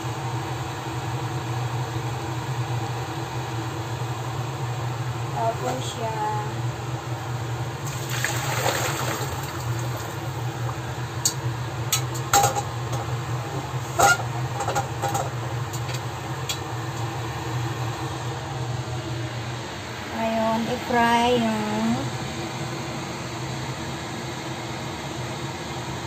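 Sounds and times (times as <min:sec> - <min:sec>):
low mechanical hum: 0:00.0 - 0:26.0
water rushing: 0:07.9 - 0:10.2.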